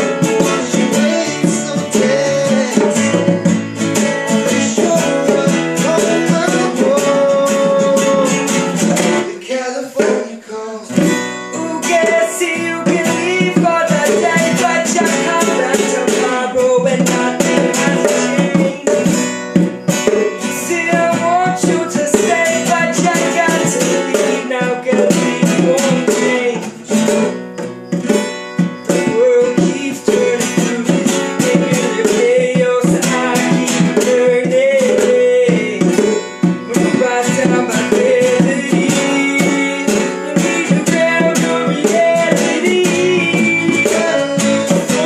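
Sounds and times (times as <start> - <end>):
acoustic and electric guitars playing: 0.0 - 45.0.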